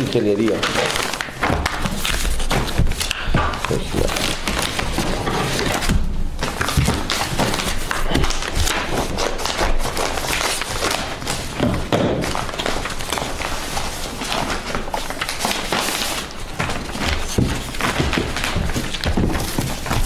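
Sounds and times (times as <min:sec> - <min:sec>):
paper pages rustling and flipping: 0:00.0 - 0:20.0
folders thumping on table: 0:11.5 - 0:12.8, 0:15.4 - 0:20.0.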